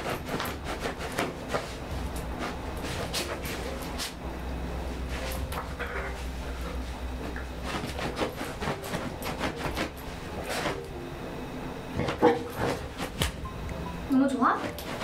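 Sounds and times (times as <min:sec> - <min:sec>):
rug rustling: 0:00.0 - 0:10.9, 0:11.9 - 0:13.4, 0:14.6 - 0:15.0
dog sniffing: 0:07.6 - 0:10.8.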